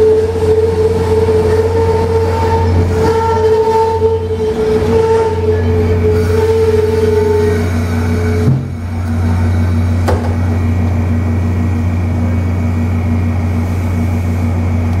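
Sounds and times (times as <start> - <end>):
high squeal from train: 0.0 - 10.0
train rolling to a stop: 0.0 - 15.0
sharp clunk: 10.0 - 10.5.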